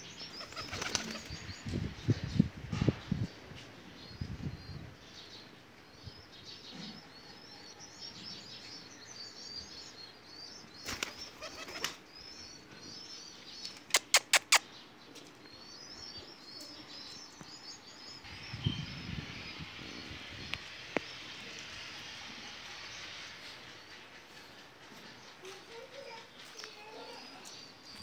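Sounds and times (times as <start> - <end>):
small birds chirping: 0.0 - 28.0
pigeon wings flapping: 0.5 - 1.3.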